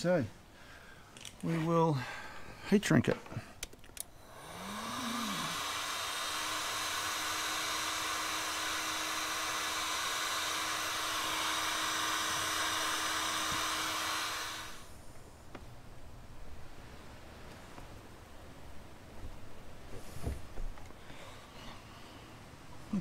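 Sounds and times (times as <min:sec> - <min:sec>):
heat gun blowing hiss: 0:04.1 - 0:15.0.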